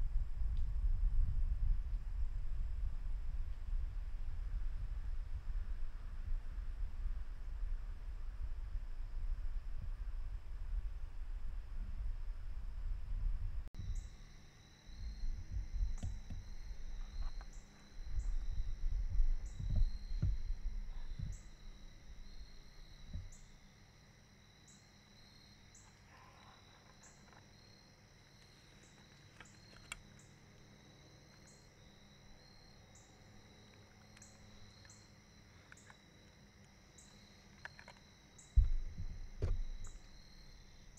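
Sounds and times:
low rumbling on microphone: 0.0s - 14.2s, 14.9s - 23.6s, 38.5s - 40.9s
insects trilling: 13.8s - 40.9s.

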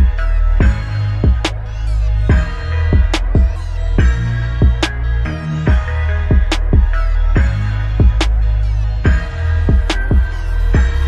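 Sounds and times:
music with deep bass and drums: 0.0s - 11.0s.

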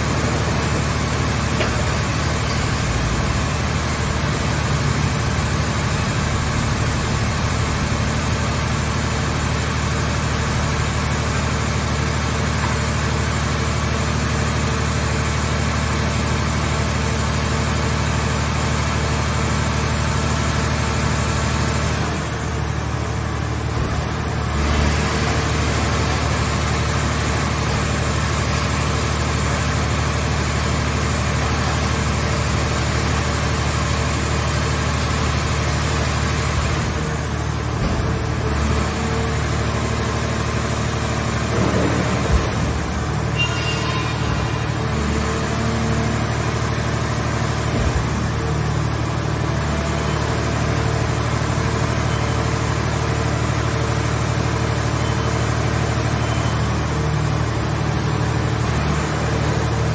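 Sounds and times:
hydraulic power unit hum: 20.8s - 59.9s.

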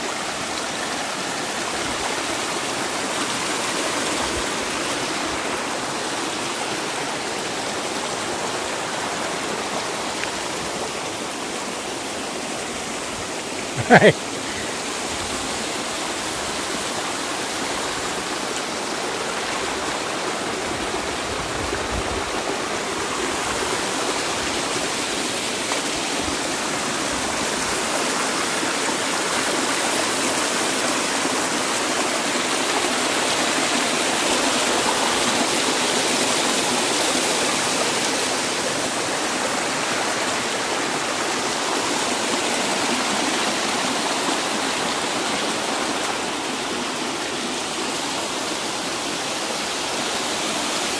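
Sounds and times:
creek rushing over rocks: 0.0s - 50.9s.

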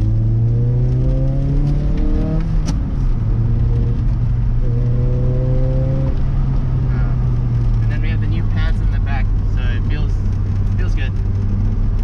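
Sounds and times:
car engine accelerating: 0.0s - 12.0s.

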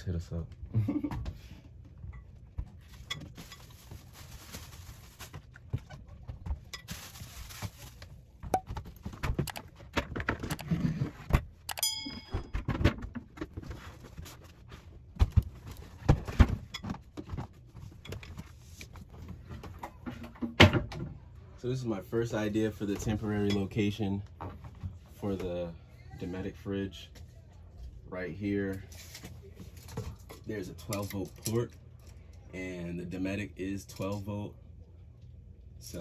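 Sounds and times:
rustling: 2.8s - 8.3s
short ringing chime: 11.7s - 12.5s.

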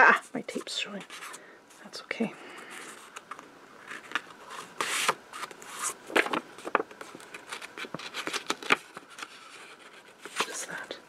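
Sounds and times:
paper rustling and scraping: 2.6s - 10.9s.

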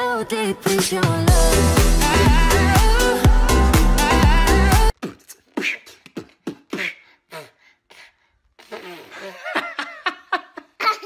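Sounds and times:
person making wordless vocal sounds: 1.3s - 7.6s.

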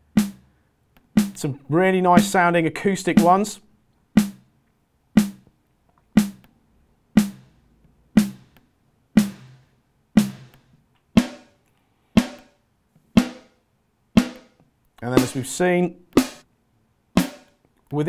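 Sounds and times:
synthesized snare drum hits: 0.0s - 0.5s, 1.2s - 1.5s, 2.2s - 2.4s, 3.1s - 3.5s, 4.2s - 4.5s, 5.2s - 5.4s, 6.2s - 6.5s, 7.2s - 7.6s, 8.2s - 8.6s, 9.2s - 11.6s, 12.2s - 12.6s, 13.2s - 13.6s, 14.2s - 14.6s, 15.2s - 15.6s, 16.2s - 16.4s, 17.2s - 17.6s.

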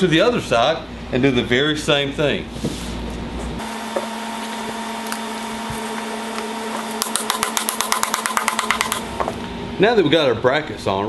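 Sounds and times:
steady hum: 0.0s - 11.0s
mallet tapping: 7.0s - 9.0s.

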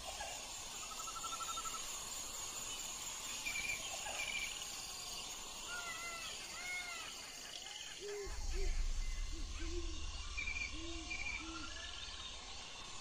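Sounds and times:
high insect drone: 0.0s - 13.0s
birds calling: 5.7s - 12.5s
whistled bird calls: 5.9s - 12.3s
bird trills: 7.9s - 12.1s.

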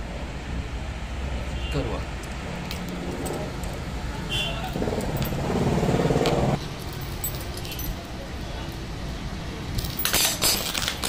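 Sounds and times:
chain links clinking: 4.6s - 5.6s, 6.8s - 8.8s, 9.7s - 11.0s.

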